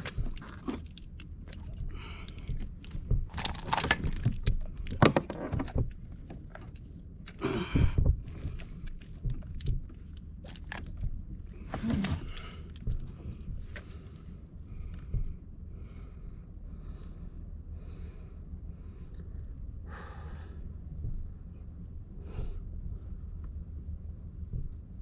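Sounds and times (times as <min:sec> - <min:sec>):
clicks knocks and rattling: 0:00.0 - 0:06.9.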